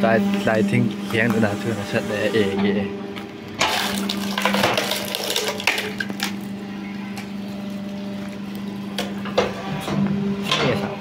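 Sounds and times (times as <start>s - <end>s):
hydraulic pump humming: 0.0s - 11.0s
hydraulic fluid rushing: 0.5s - 3.0s.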